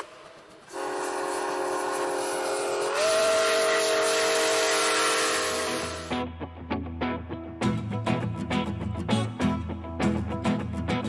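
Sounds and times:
train horn chord: 0.7 - 6.2.

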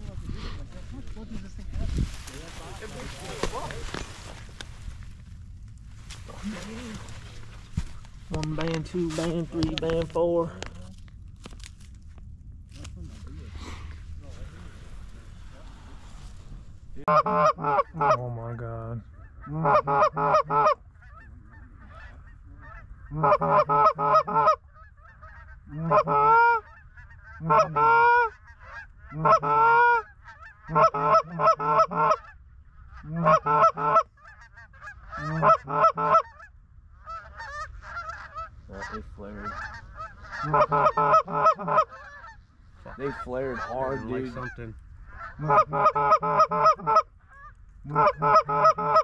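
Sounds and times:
goose honking and clucking: 17.0 - 49.0.

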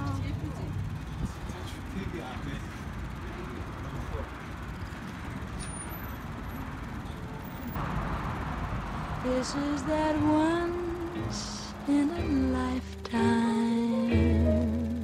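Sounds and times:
low traffic rumble: 0.0 - 15.0
person singing: 9.3 - 15.0
soft background music: 10.2 - 15.0.

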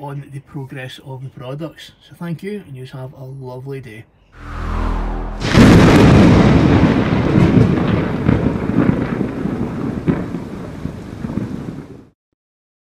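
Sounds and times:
low rumble with sharp crackles: 4.4 - 12.1
thunder crash: 4.4 - 12.1.

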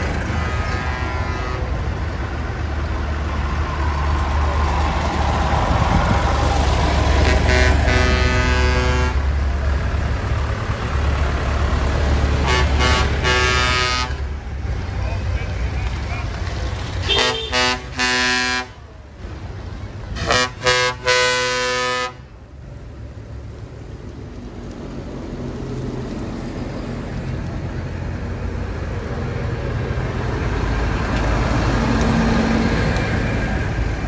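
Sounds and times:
tractor engine rumble: 0.0 - 34.0
vehicle horn blasts: 0.4 - 1.7, 7.2 - 9.2, 12.4 - 14.2, 17.0 - 18.8, 20.2 - 22.2.

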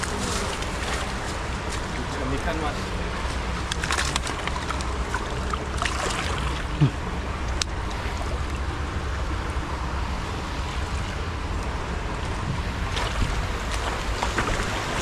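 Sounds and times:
shallow stony river flowing: 0.0 - 15.0
wind noise on microphone: 7.7 - 15.0.

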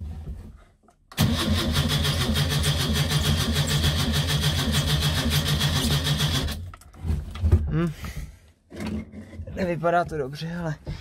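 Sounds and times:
car engine cranking by starter motor: 1.1 - 6.6.

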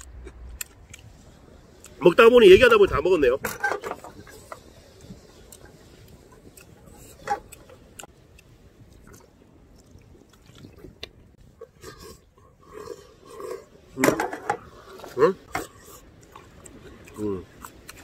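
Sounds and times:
man chewing noodles: 4.4 - 13.9, 15.6 - 18.0.

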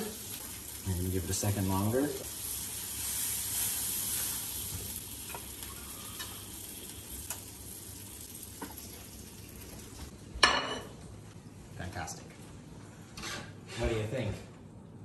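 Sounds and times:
food sizzling in frying pan: 0.0 - 10.1.

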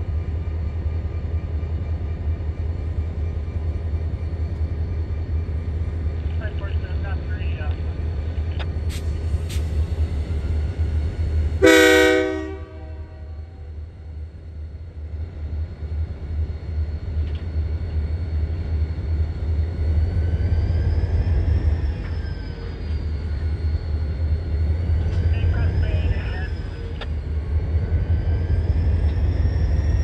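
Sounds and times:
locomotive air horn blast: 11.6 - 13.5.

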